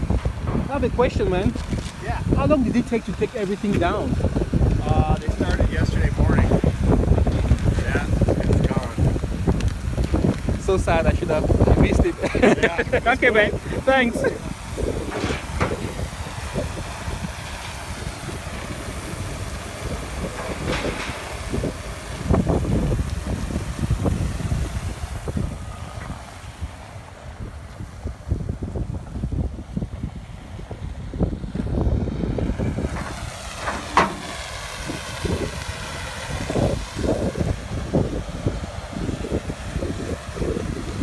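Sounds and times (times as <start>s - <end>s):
excavator diesel engine rumble: 0.0s - 28.3s, 30.0s - 41.0s
wind buffeting microphone: 0.0s - 41.0s.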